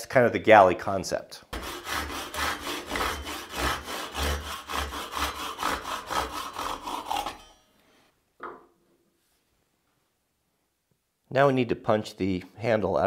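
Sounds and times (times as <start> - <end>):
hand saw cutting wood: 1.5 - 7.6.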